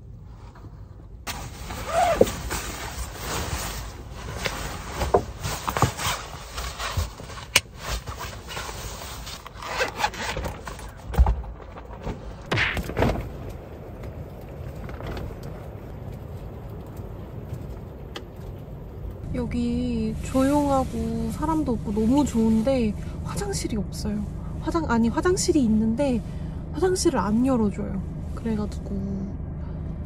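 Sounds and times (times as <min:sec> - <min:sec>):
fabric rustling and scraping: 0:00.2 - 0:13.3.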